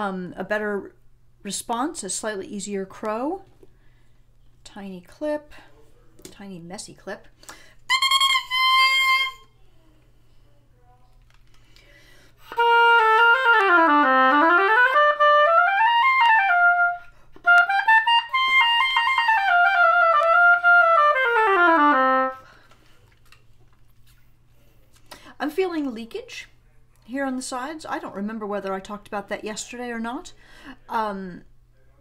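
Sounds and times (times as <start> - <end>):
oboe playing notes: 7.9 - 9.5, 12.4 - 22.4.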